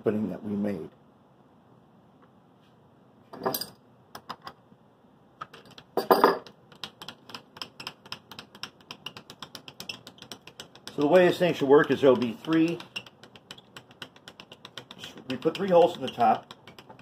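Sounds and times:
milling machine clicking: 6.7s - 17.0s.

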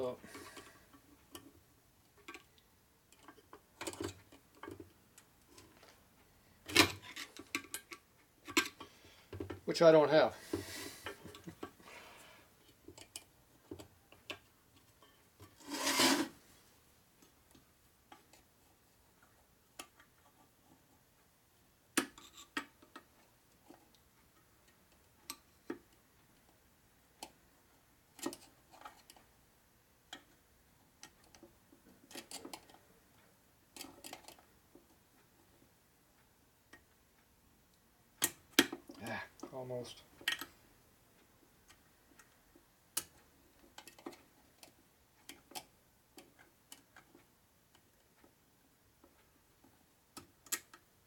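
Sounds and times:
screwdriver scraping metal: 15.6s - 16.4s.

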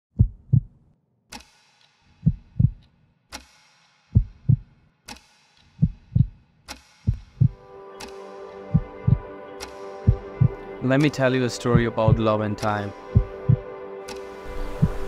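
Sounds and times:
heartbeat thumps: 0.1s - 0.8s, 2.2s - 2.8s, 4.1s - 4.7s, 5.8s - 6.4s, 7.0s - 7.6s, 8.7s - 9.3s, 10.1s - 10.6s, 11.7s - 12.3s, 13.1s - 13.7s, 14.6s - 15.0s.

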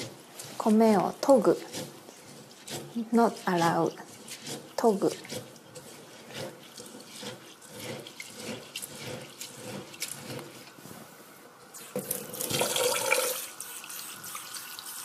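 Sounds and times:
hands scrubbing rice: 0.0s - 15.0s
tap water running into bowl: 11.8s - 15.0s.

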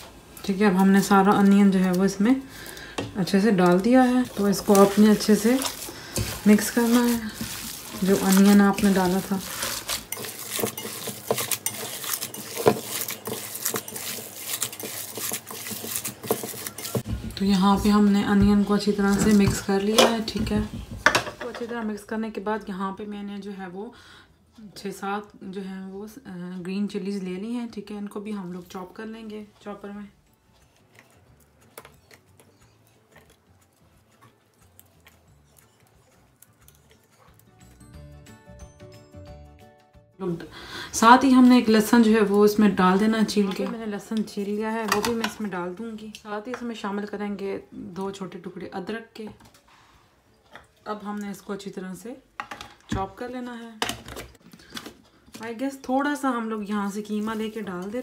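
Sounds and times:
hand kneading minced meat: 3.7s - 17.1s.

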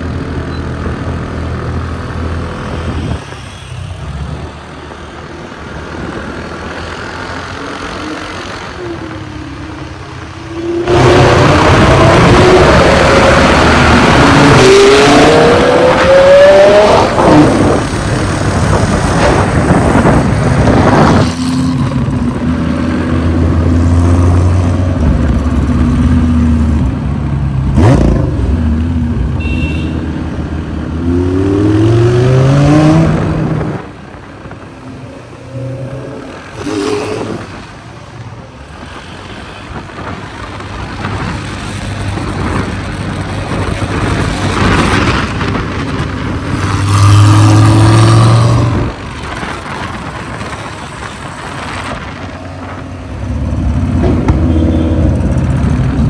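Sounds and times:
car engine revving and accelerating: 10.5s - 26.8s, 30.9s - 33.8s, 46.5s - 49.0s.

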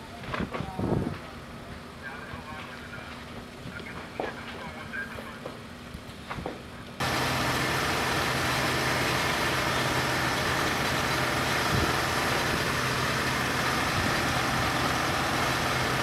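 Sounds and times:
high-pressure water jet hissing: 7.0s - 16.0s
pump engine running: 7.0s - 16.0s.

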